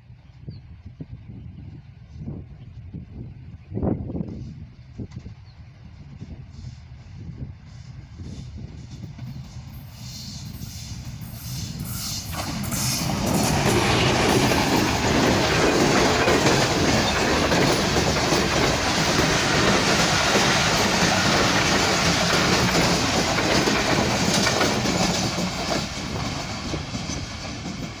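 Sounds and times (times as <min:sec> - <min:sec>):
train wheels clattering over rail joints: 0:11.2 - 0:28.0.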